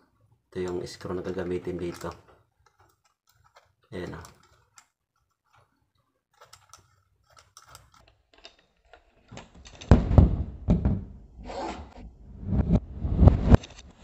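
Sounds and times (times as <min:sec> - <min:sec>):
clicks of small plastic parts: 0:00.6 - 0:09.9.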